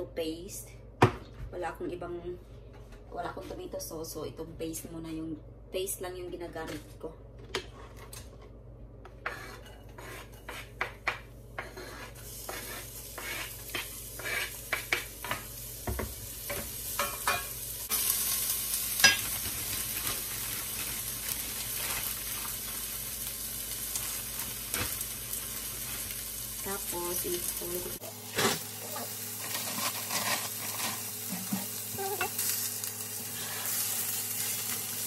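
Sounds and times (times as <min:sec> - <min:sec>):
spatula scraping and tapping pan: 0:09.1 - 0:17.5
onion sizzling in hot oil: 0:11.6 - 0:35.0.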